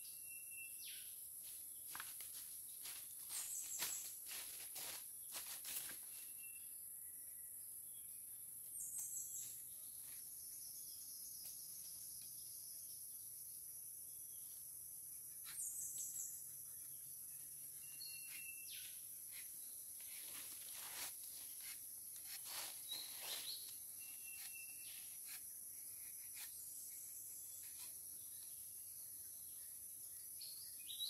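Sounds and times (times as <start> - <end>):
bird chirps: 0.0 - 1.2, 6.1 - 13.7, 15.2 - 21.1, 22.5 - 31.0
high insect drone: 0.0 - 31.0
knife scraping bark: 19.2 - 26.9.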